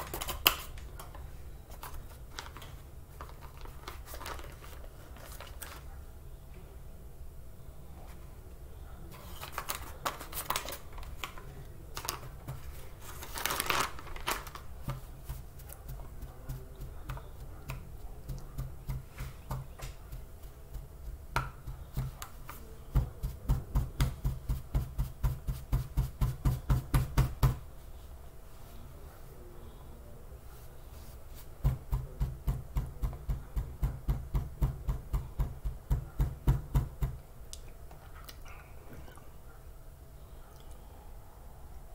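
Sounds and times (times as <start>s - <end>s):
bags crinkling: 1.7s - 5.9s, 9.3s - 15.0s.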